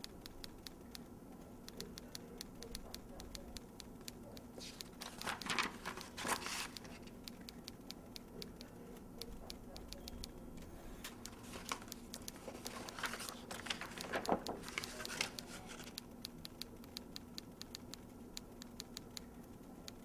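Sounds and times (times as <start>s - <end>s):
clock ticking: 0.0s - 20.0s
notepad pages rustling: 4.6s - 7.2s, 11.0s - 16.0s.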